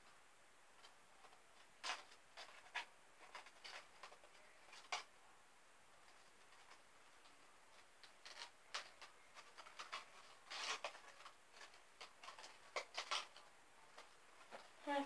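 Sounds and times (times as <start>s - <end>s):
toy clicks and rustles: 7.7s - 15.0s.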